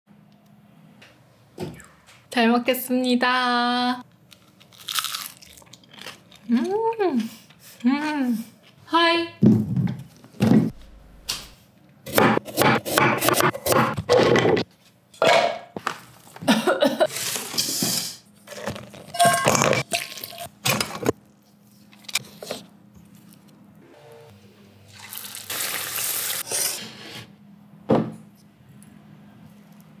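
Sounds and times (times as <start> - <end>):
utensils clattering against metal bowl: 18.5 - 21.2.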